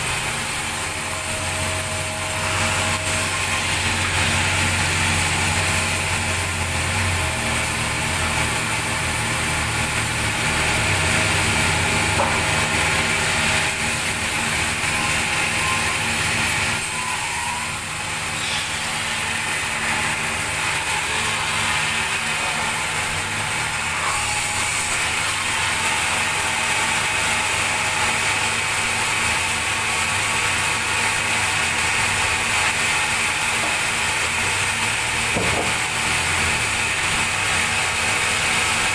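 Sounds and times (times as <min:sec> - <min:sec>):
band saw cutting log: 0:00.0 - 0:38.9.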